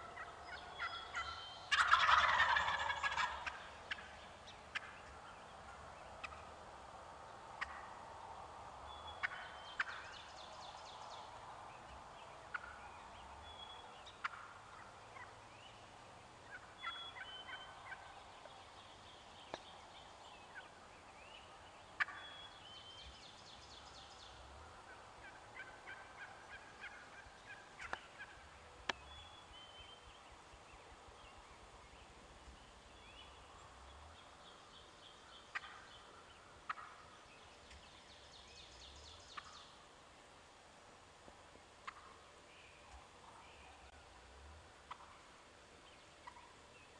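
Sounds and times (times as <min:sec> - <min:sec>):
short sharp turkey calls: 0:00.0 - 0:06.6, 0:07.6 - 0:08.0, 0:09.1 - 0:10.2, 0:12.5 - 0:15.4, 0:16.4 - 0:18.5, 0:21.4 - 0:23.1, 0:23.8 - 0:29.1, 0:35.1 - 0:37.8, 0:39.3 - 0:39.8, 0:41.8 - 0:44.0, 0:44.8 - 0:45.3, 0:46.2 - 0:46.6
small birds chirping: 0:00.0 - 0:06.6, 0:08.7 - 0:40.1
turkeys gobbling: 0:00.0 - 0:06.6, 0:07.6 - 0:08.0, 0:09.1 - 0:10.2, 0:12.5 - 0:15.4, 0:16.4 - 0:18.4, 0:21.4 - 0:22.4, 0:24.2 - 0:28.6, 0:35.3 - 0:37.8, 0:39.4 - 0:39.6, 0:41.8 - 0:42.3, 0:44.8 - 0:45.3, 0:45.9 - 0:46.6.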